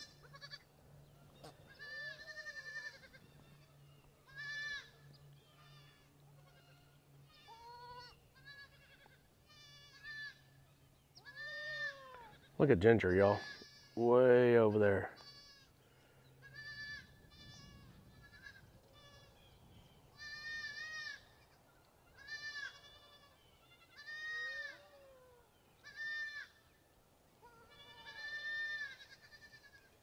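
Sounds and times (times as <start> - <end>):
goat kids bleating: 0.0 - 0.7, 1.4 - 26.7, 27.4 - 30.0.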